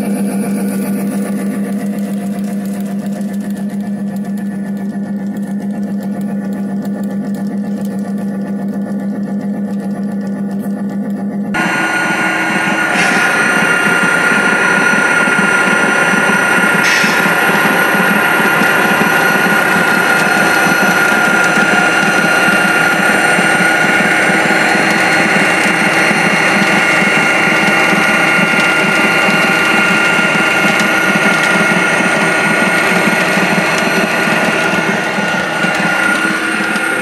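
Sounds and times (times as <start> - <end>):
model train motors whining: 0.0 - 37.0
wheels rattling on track: 0.0 - 37.0.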